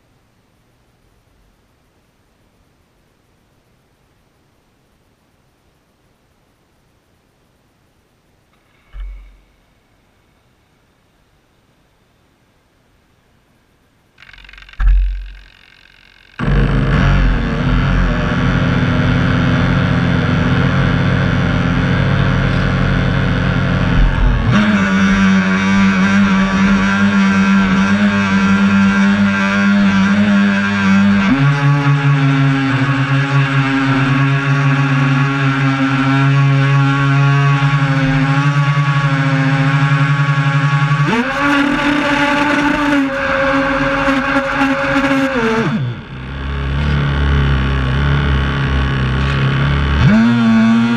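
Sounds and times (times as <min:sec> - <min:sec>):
electric motors whining: 0:14.2 - 0:20.8, 0:22.0 - 0:50.9.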